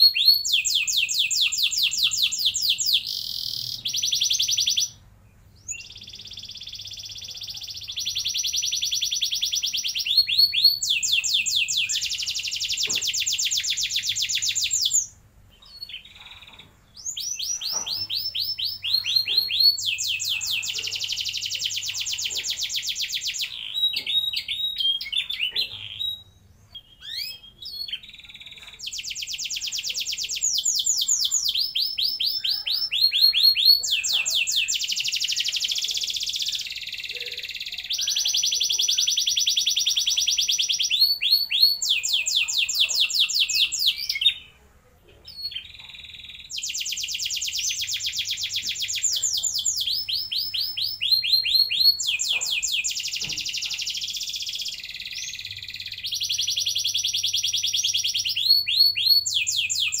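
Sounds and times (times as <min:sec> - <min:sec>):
canary singing trills: 0:00.0 - 0:44.6, 0:45.2 - 1:00.0.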